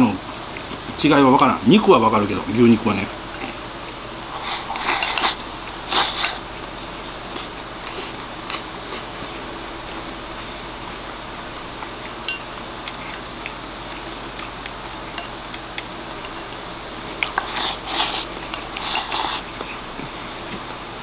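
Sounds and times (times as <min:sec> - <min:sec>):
chopsticks clicking on a bowl: 0:14.0 - 0:16.6.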